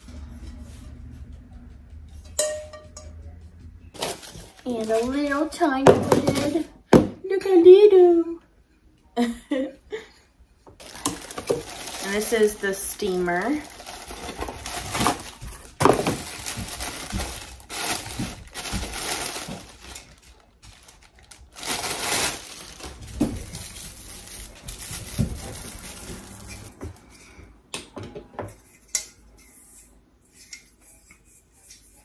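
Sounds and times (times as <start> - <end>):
plastic wrapping crinkling: 4.0 - 6.6, 10.8 - 26.7.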